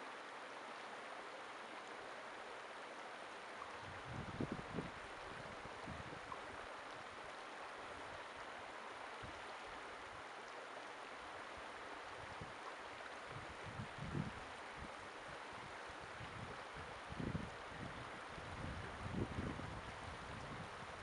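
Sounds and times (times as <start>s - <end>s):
river rushing over rocks: 0.0s - 13.7s
wind gusts on microphone: 3.8s - 6.4s, 13.3s - 21.0s.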